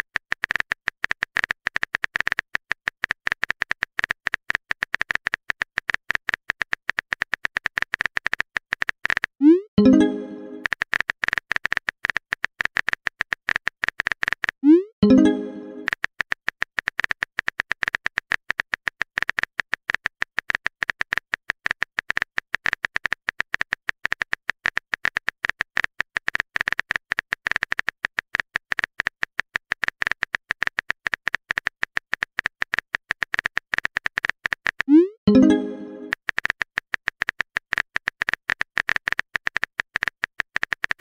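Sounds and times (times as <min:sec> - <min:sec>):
keyboard typing clicks: 0:03.2 - 0:11.0, 0:11.6 - 0:16.0, 0:29.8 - 0:41.0
short rising message tone: 0:09.4 - 0:10.7, 0:14.7 - 0:15.9, 0:34.9 - 0:36.2.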